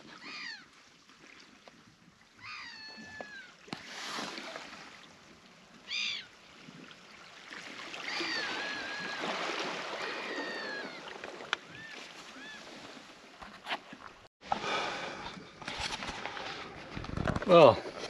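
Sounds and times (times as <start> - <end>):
gulls calling: 5.8 - 6.4, 7.9 - 13.0.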